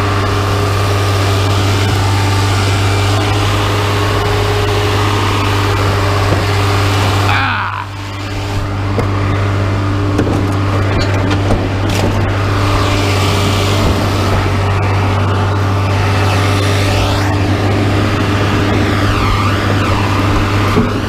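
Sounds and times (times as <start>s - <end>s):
large engine droning: 0.0s - 21.0s
scrap metal knocks and clanks: 10.1s - 14.5s.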